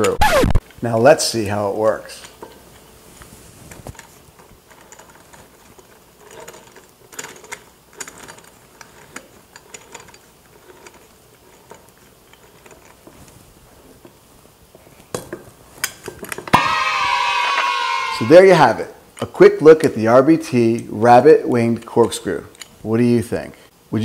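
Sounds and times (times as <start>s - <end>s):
corkscrew scraping and clicking: 2.2s - 14.2s.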